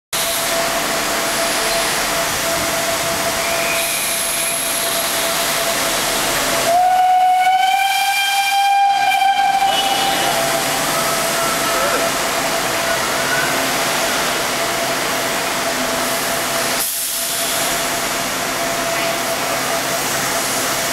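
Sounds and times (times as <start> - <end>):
steam hissing: 0.2 - 20.9
steam whistle blast: 6.6 - 12.0.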